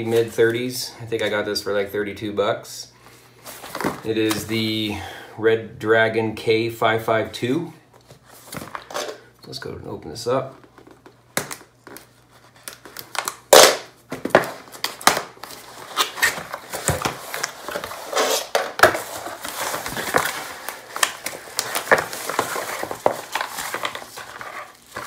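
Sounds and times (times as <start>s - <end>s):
bubble wrap crinkling: 11.7s - 25.0s
knife slitting packing tape: 15.8s - 19.0s.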